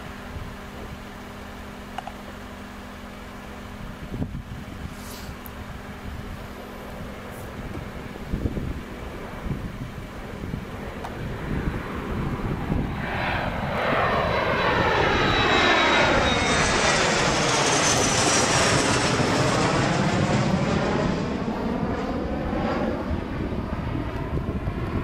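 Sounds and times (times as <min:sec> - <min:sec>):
jet airliner passing overhead: 0:00.0 - 0:25.0.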